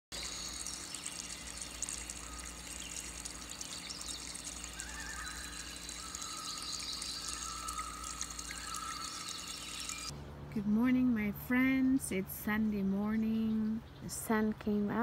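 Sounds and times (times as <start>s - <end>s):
stream trickling over rocks: 0.1s - 10.1s.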